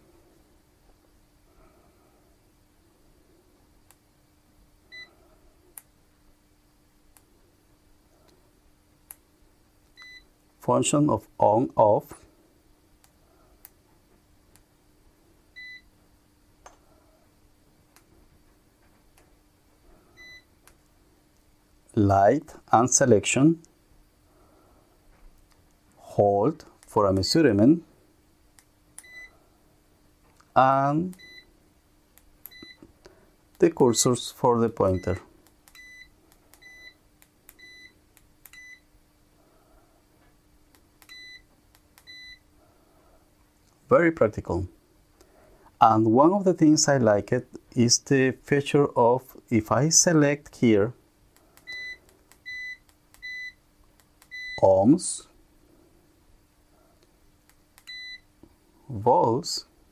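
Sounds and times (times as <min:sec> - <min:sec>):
multimeter buzzer beep: 0:29.0 - 0:29.4, 0:31.2 - 0:31.5, 0:32.5 - 0:32.8, 0:35.8 - 0:37.0, 0:37.6 - 0:38.8, 0:41.1 - 0:42.4, 0:51.7 - 0:53.6, 0:54.3 - 0:54.6, 0:57.8 - 0:58.3.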